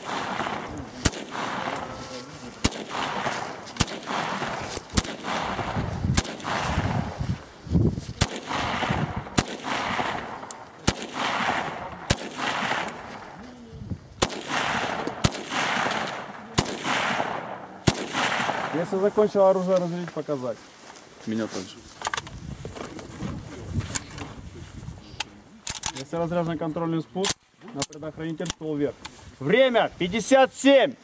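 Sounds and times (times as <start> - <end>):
rifle firing single shots: 0.0 - 7.2, 8.2 - 13.4, 14.2 - 19.8.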